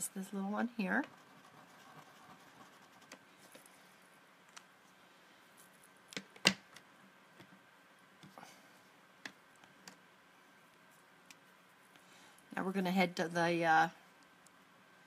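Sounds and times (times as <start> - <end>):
markers tapping and rubbing paper: 0.9 - 3.7.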